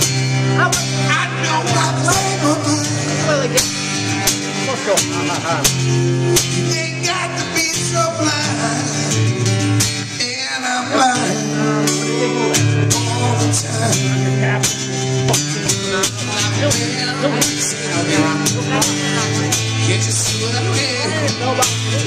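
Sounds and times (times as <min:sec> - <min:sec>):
acoustic guitar strumming: 0:00.0 - 0:22.0
person singing: 0:00.6 - 0:03.7, 0:10.0 - 0:22.0.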